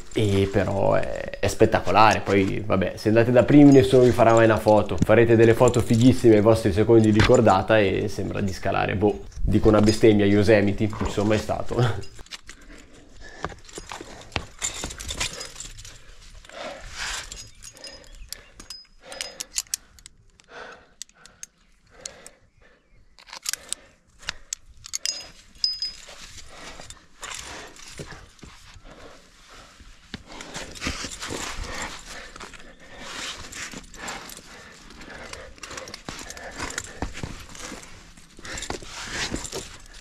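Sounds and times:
metal climbing gear clinking: 0:00.0 - 0:40.0
person breathing hard: 0:12.6 - 0:40.0.

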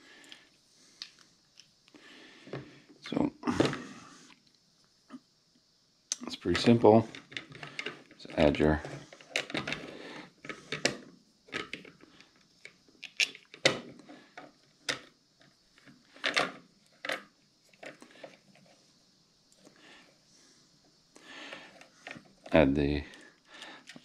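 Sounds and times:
small hard parts clicking and knocking: 0:06.6 - 0:18.8, 0:21.5 - 0:24.0.

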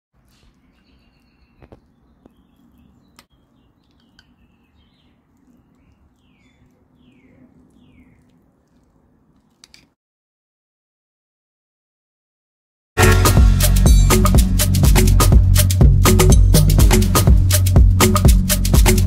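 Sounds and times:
birds chirping: 0:00.2 - 0:09.0.

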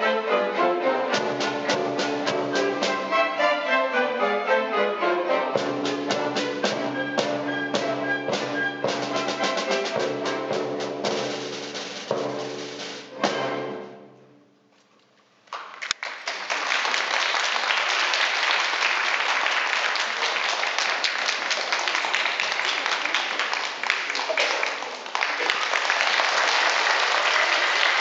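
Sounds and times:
audience applauding: 0:15.5 - 0:28.0.

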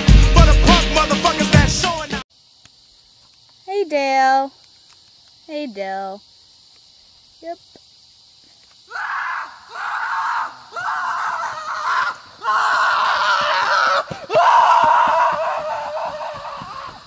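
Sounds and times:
person screaming: 0:08.9 - 0:17.0.

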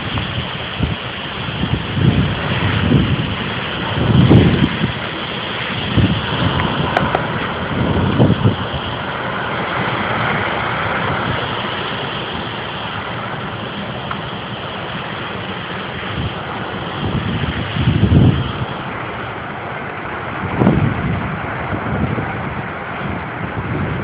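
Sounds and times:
strong wind through trees: 0:00.0 - 0:24.0
wind buffeting microphone: 0:00.0 - 0:24.0.

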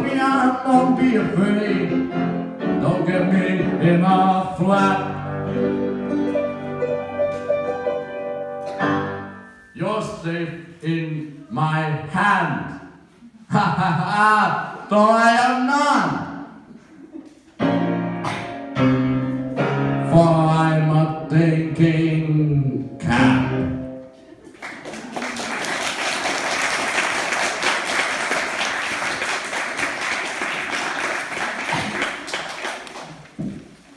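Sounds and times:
piano chords: 0:00.0 - 0:10.1, 0:17.6 - 0:24.3
audience clapping: 0:24.5 - 0:33.8.

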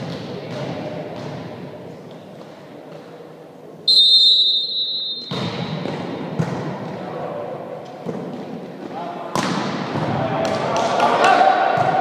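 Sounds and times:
sports hall noise: 0:00.0 - 0:12.0
referee's whistle blast: 0:03.9 - 0:05.4.

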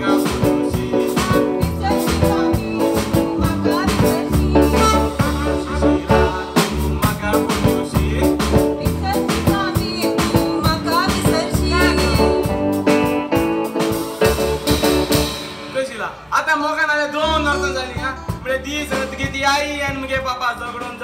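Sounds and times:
person singing: 0:00.0 - 0:12.6
live band playing: 0:00.0 - 0:21.0.

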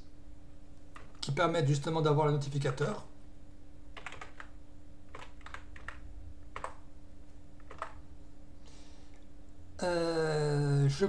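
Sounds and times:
faint steady hum: 0:00.0 - 0:11.0
keyboard typing clicks: 0:04.0 - 0:06.8, 0:07.6 - 0:08.0.

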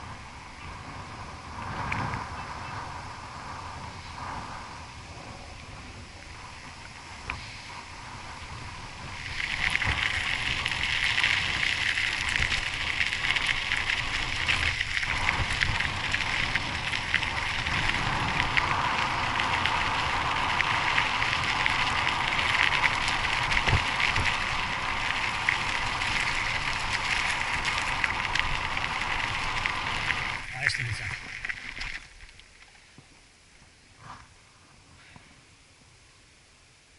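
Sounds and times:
tyre noise on asphalt: 0:00.0 - 0:35.5
bike tyres crunching on gravel: 0:04.0 - 0:32.6.

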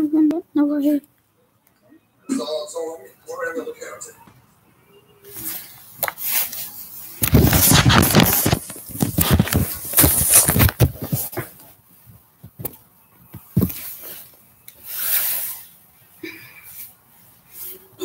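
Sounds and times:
microphone handling noise: 0:07.2 - 0:13.9.

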